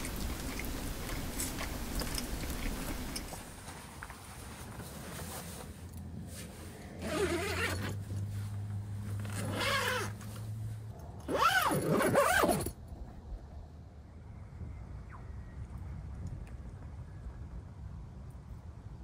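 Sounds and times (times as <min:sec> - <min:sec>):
tent zipper being pulled: 0:04.8 - 0:10.5, 0:11.2 - 0:12.8.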